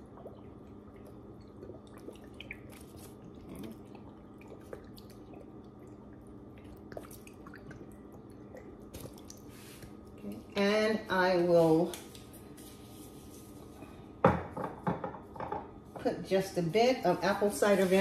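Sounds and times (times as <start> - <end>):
faint ticks and wet drips: 0.0 - 10.6
steady low hum: 0.0 - 18.0.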